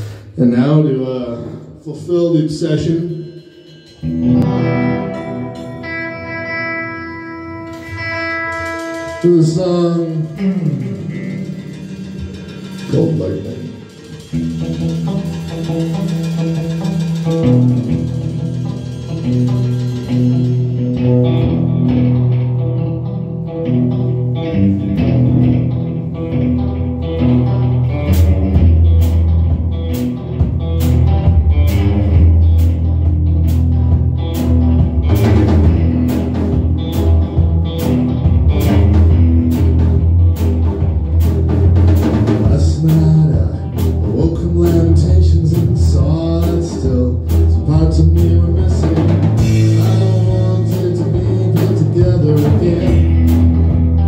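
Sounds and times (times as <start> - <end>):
drum kit with cymbals: 0.0 - 1.6, 7.7 - 21.4, 28.0 - 54.0
electric guitar: 3.2 - 54.0
bass guitar: 4.0 - 54.0.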